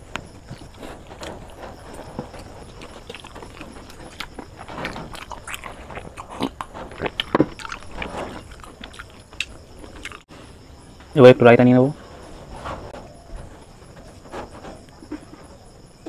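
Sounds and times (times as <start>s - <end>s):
person chewing wetly: 2.1s - 10.3s.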